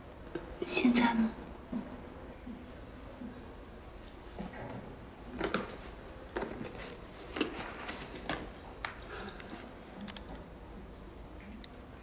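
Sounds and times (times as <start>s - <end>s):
handbag rustling and clicking: 5.4s - 10.4s.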